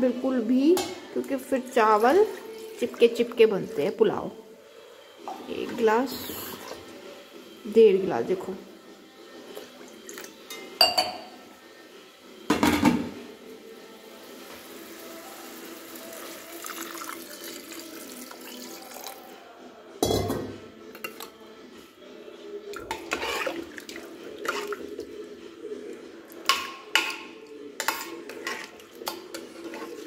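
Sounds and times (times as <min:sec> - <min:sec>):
water pouring into a pot: 0:14.7 - 0:19.3, 0:22.8 - 0:25.1
knock on metal pot: 0:20.0 - 0:20.5
metal spoon scraping a pot: 0:22.8 - 0:25.0, 0:26.4 - 0:30.0.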